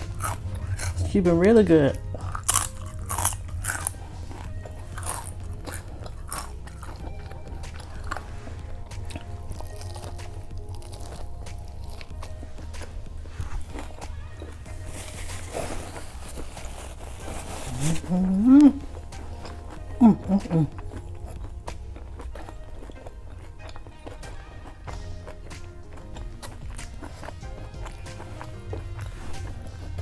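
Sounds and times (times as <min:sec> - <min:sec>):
background music: 0:00.0 - 0:30.0
crunching tortilla chips: 0:00.0 - 0:30.0
person chewing food: 0:00.0 - 0:30.0
paper napkin rustling: 0:12.9 - 0:18.7.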